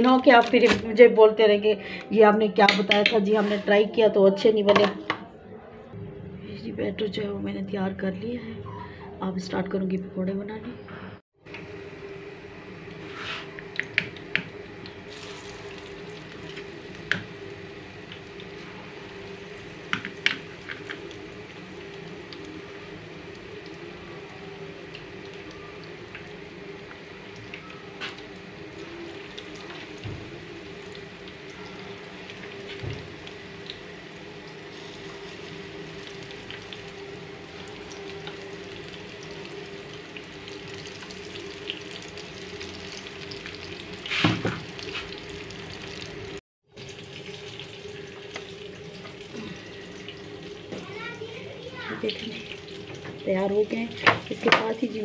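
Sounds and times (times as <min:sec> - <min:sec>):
batter sizzling in hot oil: 0:11.6 - 0:55.0
oil hissing in frying pan: 0:15.1 - 0:27.4, 0:28.0 - 0:55.0.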